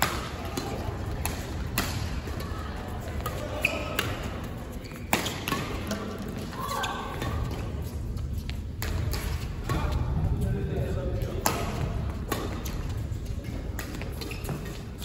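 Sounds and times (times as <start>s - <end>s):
rackets striking shuttlecock: 0.0s - 2.4s, 3.2s - 6.2s, 11.2s - 12.9s, 13.5s - 15.0s.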